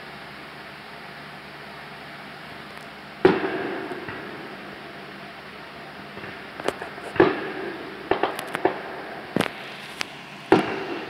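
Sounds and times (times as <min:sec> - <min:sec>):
fireworks bangs with echo: 0:03.2 - 0:11.0.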